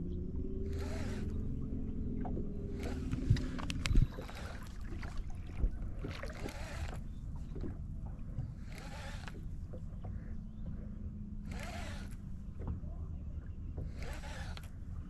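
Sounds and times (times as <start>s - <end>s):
boat motor humming: 0.0s - 15.0s
small clicks: 2.2s - 5.2s, 6.1s - 7.8s, 8.4s - 10.2s, 11.5s - 12.7s, 13.8s - 14.8s.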